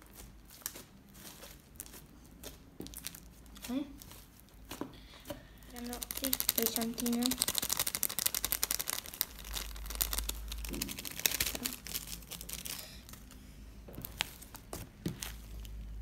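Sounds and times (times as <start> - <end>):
plastic container crinkling: 5.7 - 13.4.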